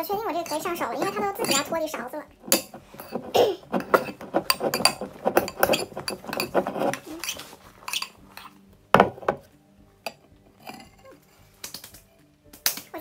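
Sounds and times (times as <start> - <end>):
spoon stirring slime: 0.1 - 9.3
spoon knocking bowl: 2.4 - 7.0, 9.0 - 10.2.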